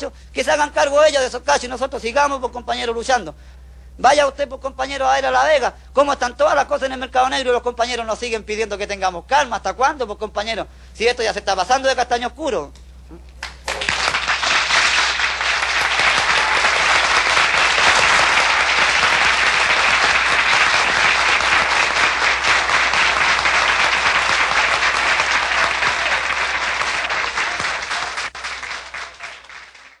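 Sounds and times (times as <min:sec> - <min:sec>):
crowd applauding: 0:13.4 - 0:30.0.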